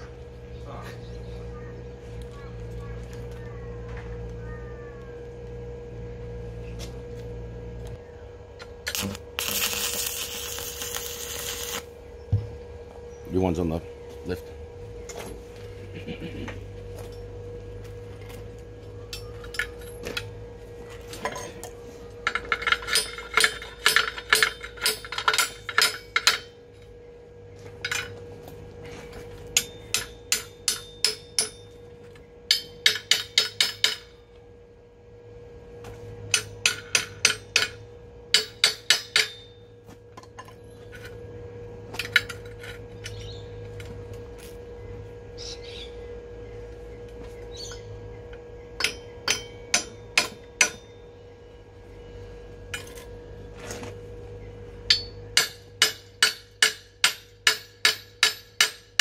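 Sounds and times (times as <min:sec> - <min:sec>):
steady hum: 0:00.0 - 0:59.0
hammer strikes on metal: 0:29.6 - 0:31.7, 0:32.5 - 0:34.2, 0:36.3 - 0:39.6, 0:48.8 - 0:50.9, 0:54.9 - 0:59.0.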